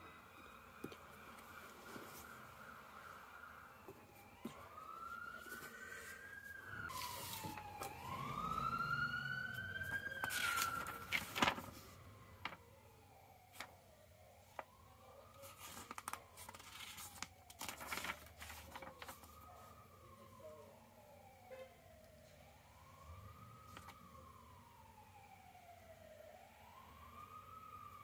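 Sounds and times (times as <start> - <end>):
siren wailing: 0.0 - 28.0
paper pages rustling: 5.3 - 8.0, 9.8 - 12.6, 13.5 - 13.7, 15.3 - 19.4, 23.7 - 24.0.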